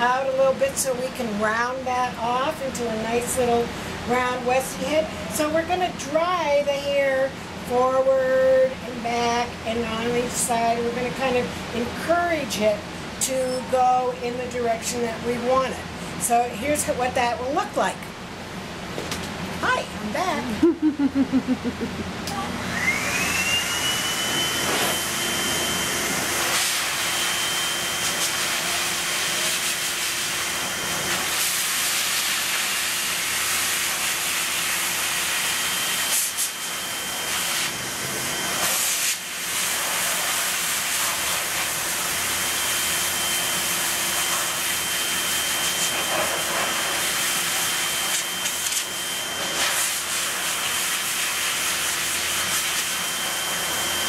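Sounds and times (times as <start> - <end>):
high motor whine: 20.0 - 31.3
pet dryer air rushing: 21.5 - 54.0.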